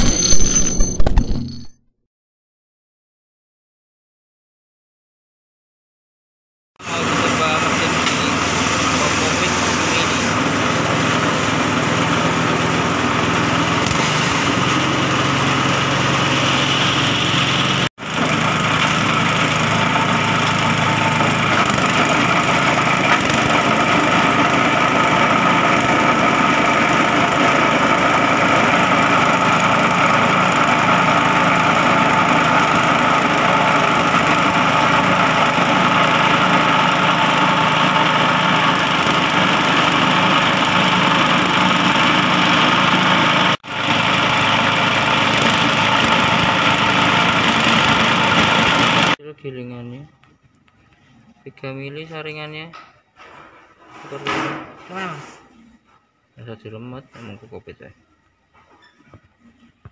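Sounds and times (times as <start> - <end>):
husk shredder shredding: 6.8 - 49.2
small petrol engine running: 6.8 - 49.2.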